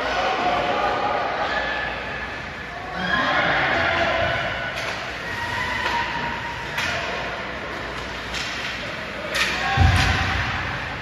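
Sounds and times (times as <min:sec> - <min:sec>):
background crowd hubbub: 0:00.0 - 0:11.0
hockey sticks and puck clacking: 0:04.7 - 0:11.0.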